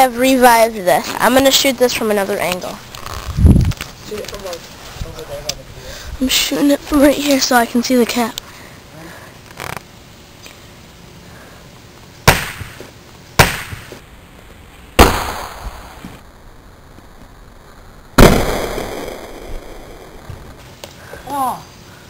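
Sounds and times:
bottle bursting bang: 0:15.0 - 0:16.0, 0:18.2 - 0:19.6.

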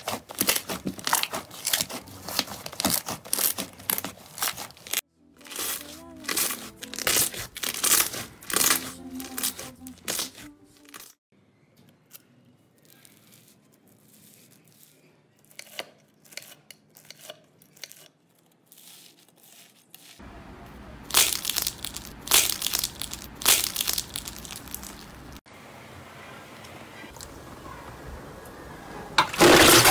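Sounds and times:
paper squishy crinkling and tearing: 0:00.0 - 0:11.2, 0:12.1 - 0:20.3, 0:21.0 - 0:25.4
slime crackling: 0:00.0 - 0:11.2, 0:21.0 - 0:25.4.

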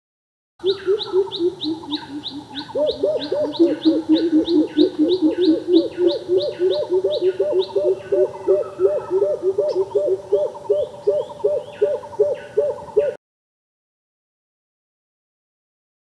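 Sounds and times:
bird calling deep coop notes: 0:00.6 - 0:13.2.

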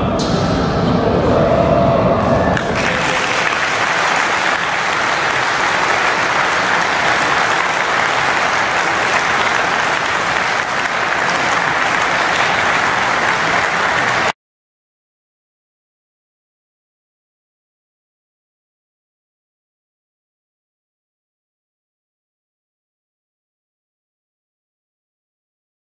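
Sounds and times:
crowd applauding: 0:02.5 - 0:14.4.

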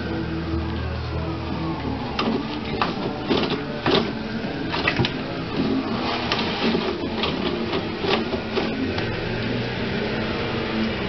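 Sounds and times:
toilet paper roll turning: 0:01.6 - 0:09.6
paper rustling and tearing: 0:05.6 - 0:08.9.

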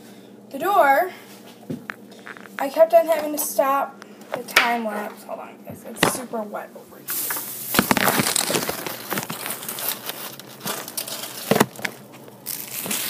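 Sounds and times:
phone handling rustling and crinkling: 0:01.8 - 0:02.7, 0:07.2 - 0:13.0.

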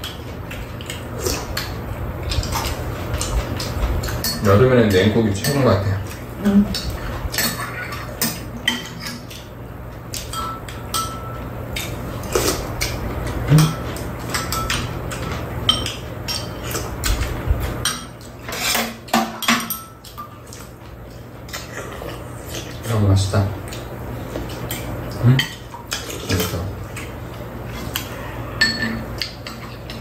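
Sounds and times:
steady low hum: 0:00.0 - 0:30.0
utensils clinking on ceramic bowls: 0:02.5 - 0:09.5, 0:10.2 - 0:11.5, 0:13.5 - 0:16.8, 0:17.8 - 0:20.6, 0:28.6 - 0:30.0.

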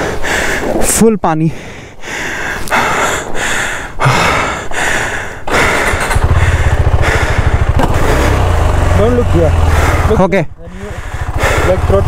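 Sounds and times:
motorcycle engine running at low revs: 0:05.6 - 0:12.0.

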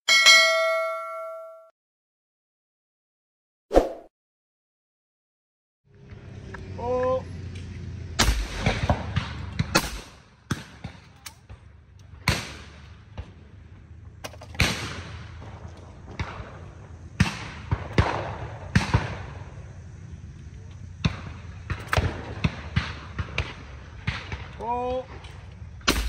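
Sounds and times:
shotgun shots with echo: 0:08.2 - 0:11.0, 0:14.5 - 0:15.1.

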